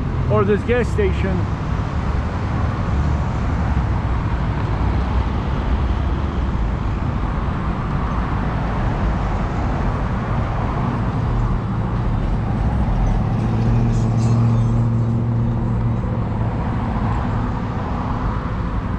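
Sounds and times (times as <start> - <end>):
road traffic rumble: 0.0 - 18.9
vehicle engine hum: 0.0 - 18.9.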